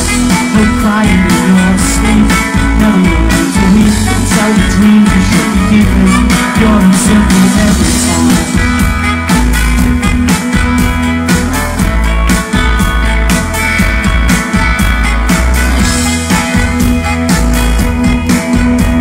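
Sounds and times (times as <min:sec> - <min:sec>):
bass guitar: 0:00.0 - 0:19.0
electric guitars: 0:00.0 - 0:19.0
steady drumbeat: 0:00.0 - 0:19.0.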